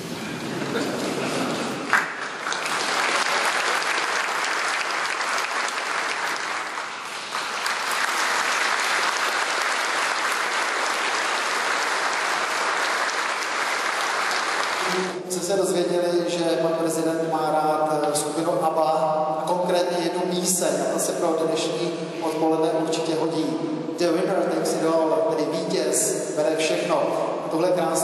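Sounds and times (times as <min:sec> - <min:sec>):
audience applauding: 0:00.8 - 0:15.2.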